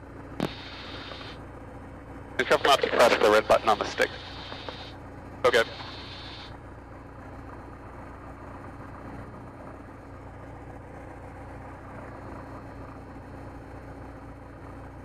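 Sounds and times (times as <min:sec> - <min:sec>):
aircraft engine idling: 0:00.0 - 0:15.0.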